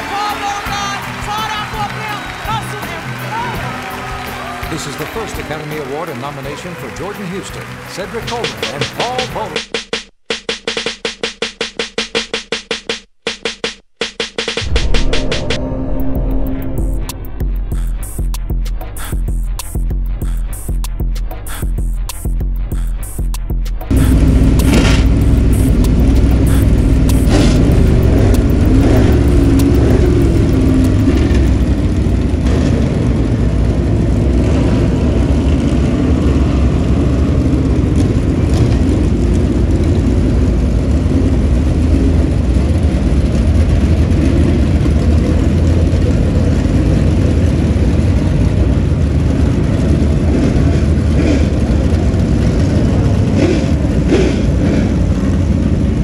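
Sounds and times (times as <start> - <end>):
race car engines passing: 23.9 - 56.0.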